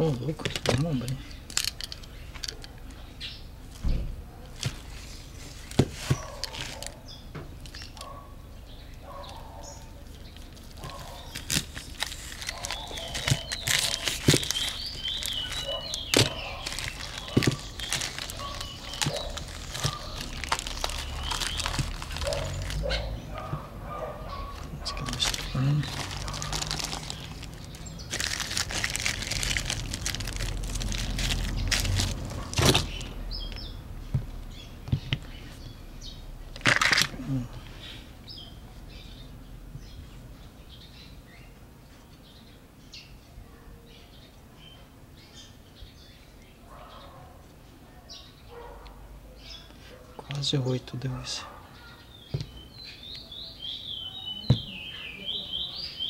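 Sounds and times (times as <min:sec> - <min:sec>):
plastic wrapping rustling: 0:00.0 - 0:02.7, 0:04.5 - 0:07.0, 0:10.0 - 0:33.2, 0:36.6 - 0:37.2.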